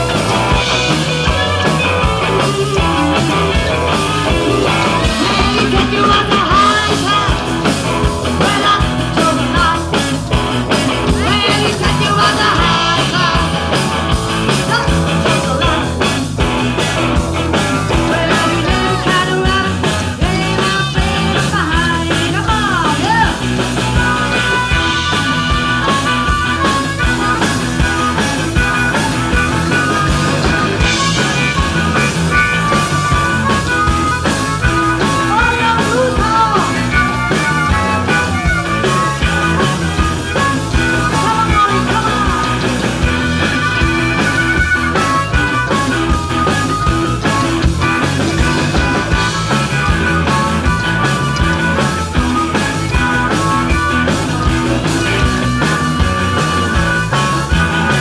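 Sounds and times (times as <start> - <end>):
blues-rock band playing: 0.0 - 58.0
harmonica: 23.8 - 58.0.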